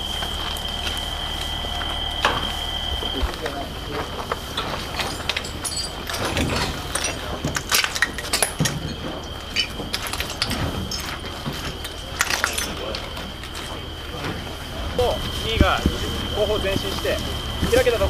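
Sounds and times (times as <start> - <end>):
faint high whine: 0.0 - 18.0
gear and rifles clinking and rattling: 3.3 - 14.4.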